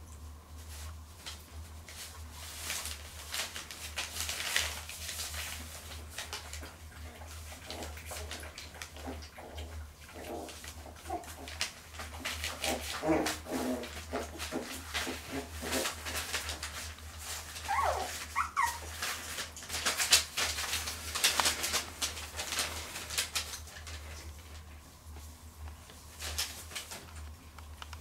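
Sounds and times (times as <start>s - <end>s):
puppy lapping at a bowl: 5.6s - 16.4s
puppy grunts: 12.5s - 16.0s, 17.7s - 18.8s
puppy whimpering: 17.6s - 18.9s.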